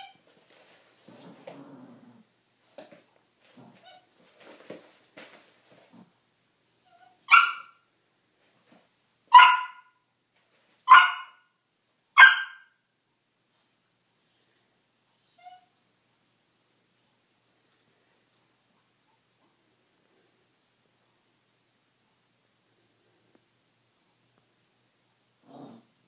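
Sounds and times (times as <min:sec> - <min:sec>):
dog barking: 0:07.3 - 0:07.8, 0:09.3 - 0:10.0, 0:10.9 - 0:11.5, 0:12.2 - 0:12.8.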